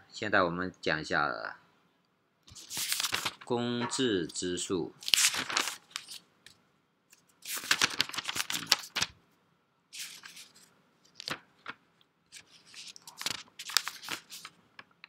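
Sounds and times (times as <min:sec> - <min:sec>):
crackling rustle: 0:05.0 - 0:06.2, 0:07.1 - 0:09.1, 0:10.0 - 0:15.0.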